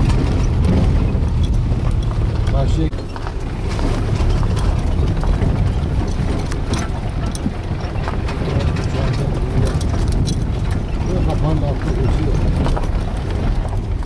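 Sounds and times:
engine and road rumble: 0:00.0 - 0:14.0
light clicks and rattles: 0:00.0 - 0:14.0.

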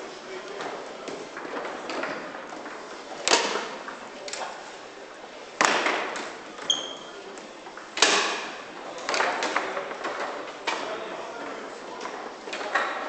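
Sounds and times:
foosball rod men striking ball: 0:01.1 - 0:04.0, 0:05.6 - 0:06.4, 0:07.8 - 0:11.2.

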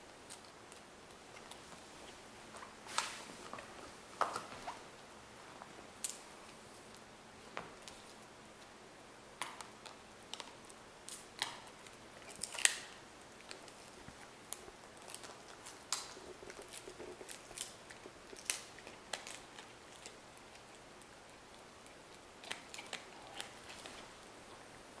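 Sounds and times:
dog gnawing on a stick: 0:09.4 - 0:24.2.

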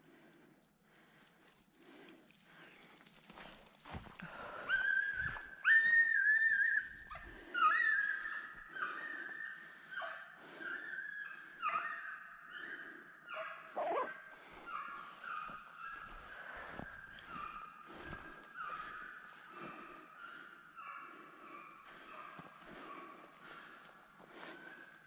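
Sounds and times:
hound baying: 0:04.8 - 0:23.8.

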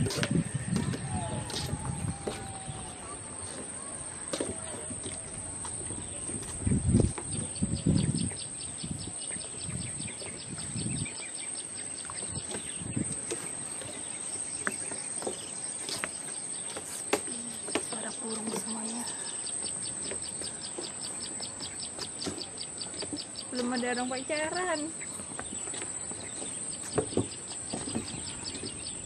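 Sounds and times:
low rumbles on microphone: 0:00.0 - 0:11.2, 0:12.2 - 0:13.3
high chirps of small wildlife: 0:00.0 - 0:29.0.

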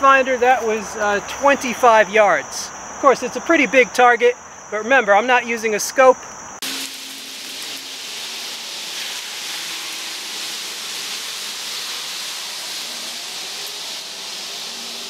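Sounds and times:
creek water rushing: 0:06.6 - 0:15.0.

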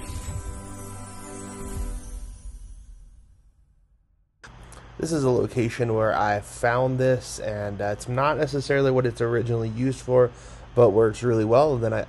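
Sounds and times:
deep low hit: 0:00.0 - 0:01.0
logo music with held tones: 0:00.0 - 0:04.0.

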